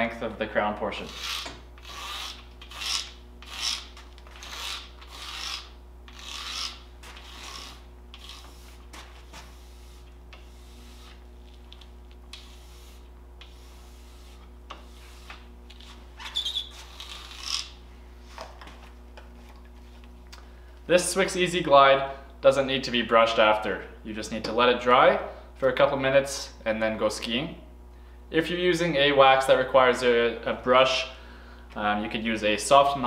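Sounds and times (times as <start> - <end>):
sponge rubbing on ski base: 1.0 - 11.3, 12.3 - 17.5.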